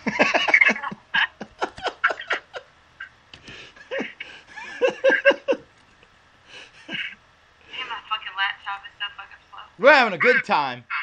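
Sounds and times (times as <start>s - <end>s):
person laughing: 0.0s - 5.7s, 6.5s - 7.2s.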